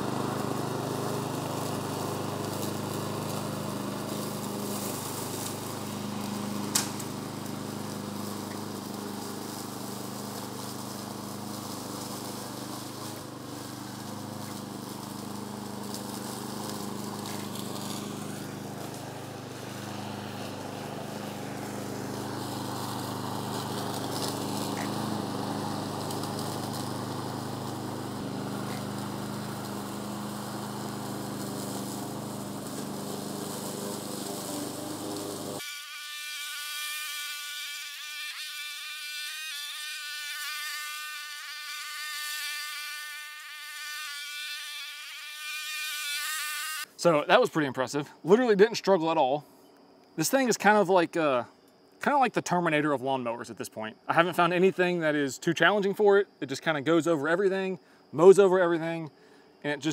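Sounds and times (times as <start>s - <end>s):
mower chewing through brush: 0.0s - 35.6s, 54.1s - 59.9s
mower engine running: 0.0s - 35.6s.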